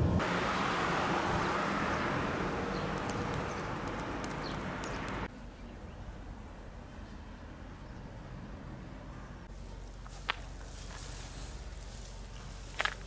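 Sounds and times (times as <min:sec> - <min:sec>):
vehicle rushing past: 0:00.0 - 0:05.3.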